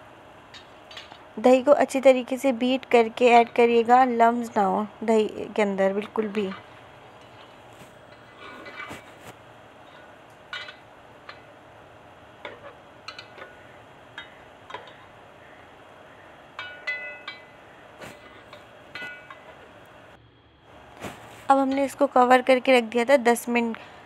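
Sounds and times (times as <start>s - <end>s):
metal spoon scraping pot: 6.1s - 9.2s.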